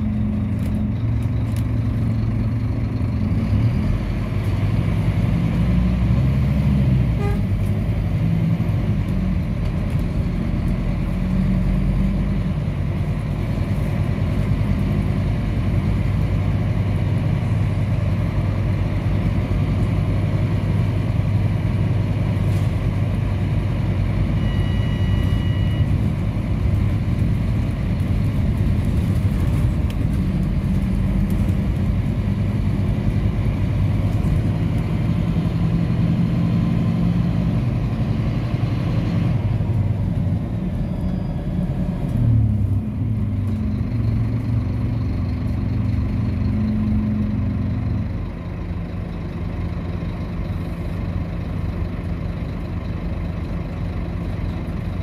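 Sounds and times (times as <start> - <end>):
bus engine from inside: 0.0 - 55.0
short electronic beep: 24.3 - 26.0.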